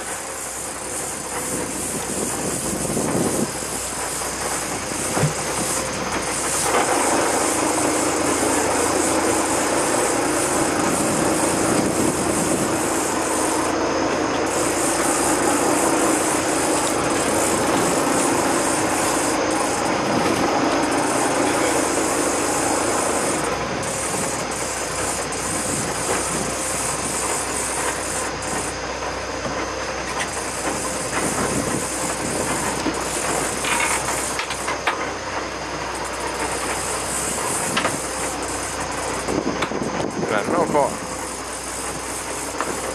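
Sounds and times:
boat engine running: 0.0 - 42.9
water along a hull: 0.0 - 42.9
wind on microphone: 1.3 - 4.0, 9.0 - 27.3, 31.1 - 33.6, 39.2 - 41.0.

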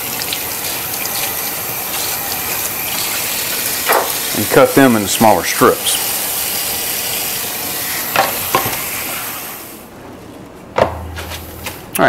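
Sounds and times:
faucet water running: 0.0 - 9.6.

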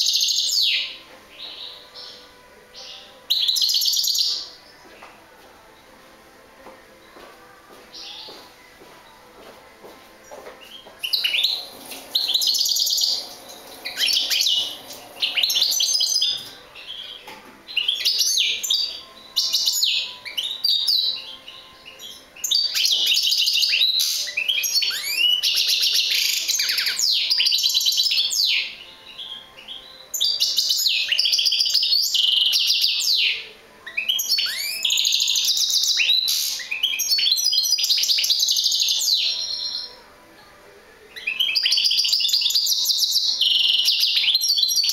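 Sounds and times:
goldfinch twittering song: 10.6 - 40.0, 41.2 - 44.9.

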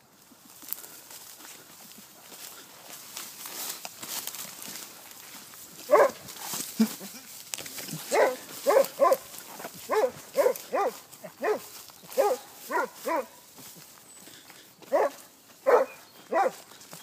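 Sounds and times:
hound baying: 5.8 - 7.0, 7.8 - 13.5, 14.8 - 16.7.

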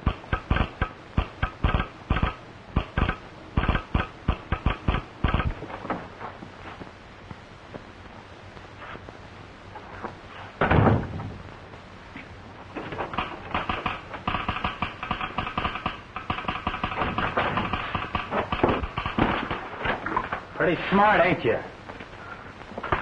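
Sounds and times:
loud thud: 10.6 - 11.4.

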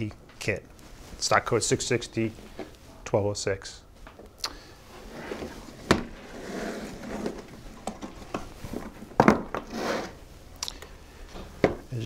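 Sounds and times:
case rustling and knocking: 7.1 - 9.7.

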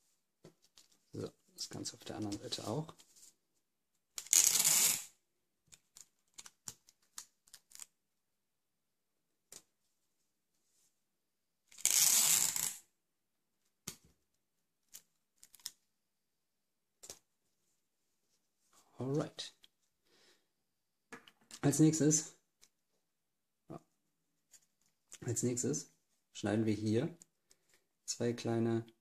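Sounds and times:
adhesive tape pulled off roll: 4.2 - 5.1, 11.7 - 12.8.

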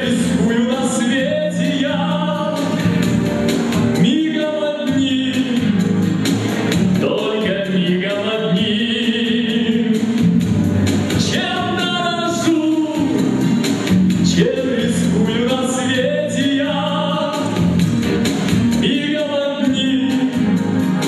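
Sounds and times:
man singing into a microphone: 0.0 - 3.0, 4.0 - 6.0, 6.9 - 10.4, 11.2 - 13.5, 14.2 - 17.8, 18.8 - 21.0
instrumental music with steady beat: 0.0 - 21.0.

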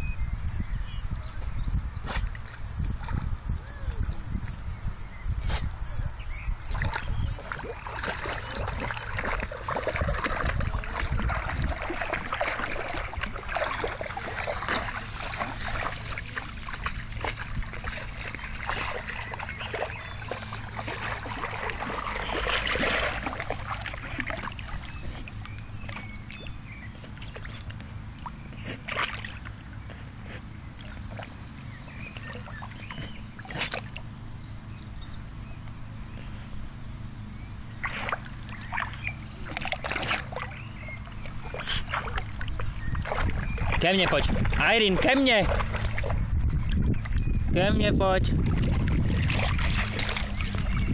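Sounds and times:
dog splashing through water: 6.6 - 34.3, 37.8 - 47.4, 48.3 - 50.9.

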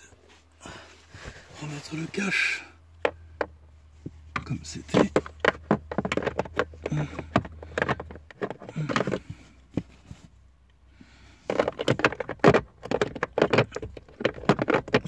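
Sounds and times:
plastic trim knocking and clicking: 4.4 - 9.9.

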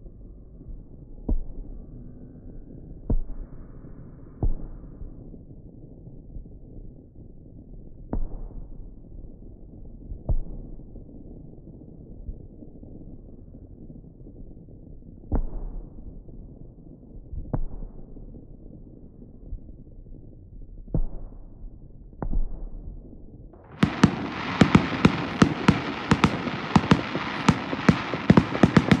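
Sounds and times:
distant firework booms: 23.6 - 29.0
firework crackling and pops: 23.6 - 29.0.

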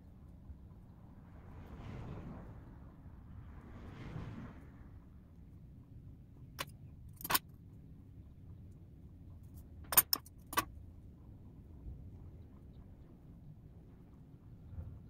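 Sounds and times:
sharp short clicks: 9.9 - 10.7.

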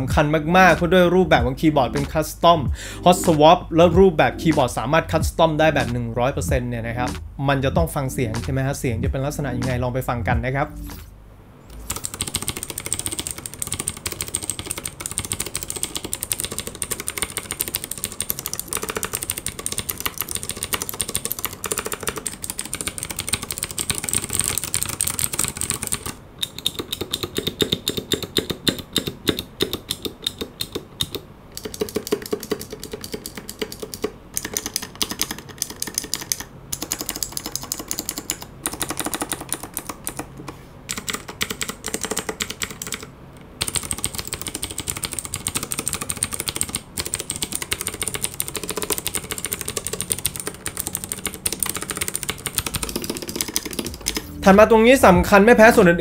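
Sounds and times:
mechanical keyboard typing: 11.7 - 55.0.

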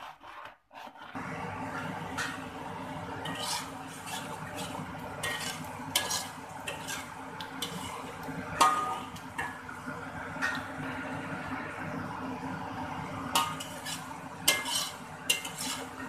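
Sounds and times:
spatula scraping metal wok: 0.0 - 2.4, 3.1 - 9.5, 13.4 - 16.0
paste sizzling: 3.1 - 9.6, 13.4 - 16.0
spatula clinking against wok: 13.4 - 16.0.

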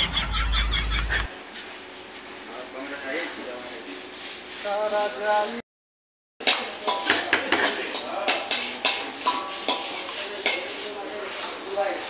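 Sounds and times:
ladle scraping metal wok: 3.0 - 5.2, 6.4 - 12.0.

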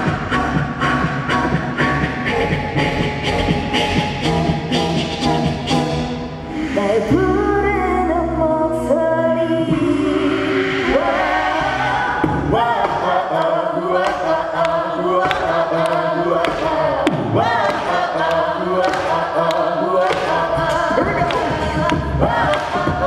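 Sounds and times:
group singing in harmony: 9.6 - 23.0.

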